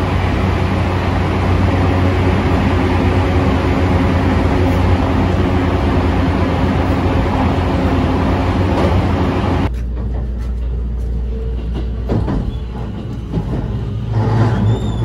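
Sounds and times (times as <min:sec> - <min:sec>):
electric train running at speed: 0:00.0 - 0:15.0
train rumbling slowly: 0:00.0 - 0:15.0.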